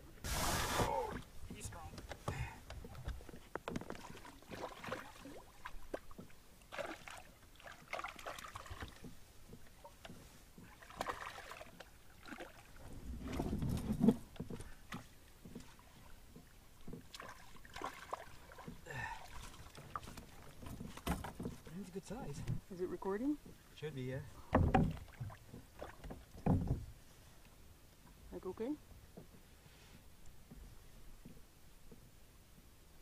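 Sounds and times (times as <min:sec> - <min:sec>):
water sloshing: 0:00.0 - 0:28.2
knocks on canoe hull: 0:19.9 - 0:21.6, 0:24.5 - 0:26.9.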